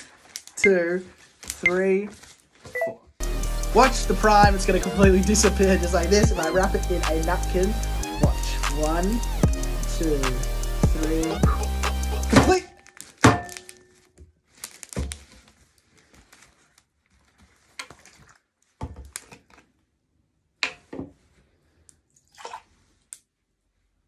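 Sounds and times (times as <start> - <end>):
paper towel rustling and crinkling: 0.0 - 3.2, 12.3 - 19.6.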